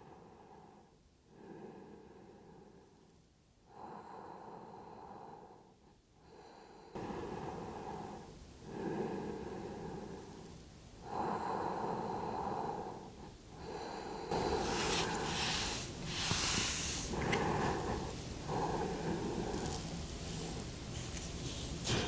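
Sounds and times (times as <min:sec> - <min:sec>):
person breathing with hissing breaths: 0:00.0 - 0:22.0.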